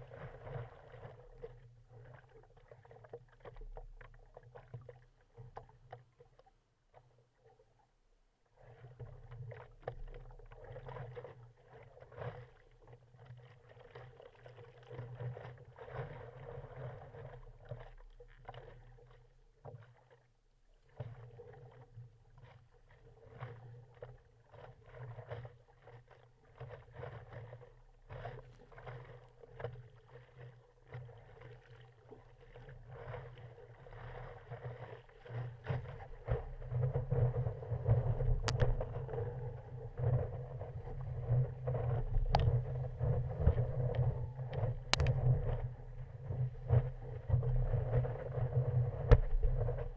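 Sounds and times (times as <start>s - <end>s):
water splashing against a paddleboard: 0.0s - 7.7s, 8.5s - 49.9s.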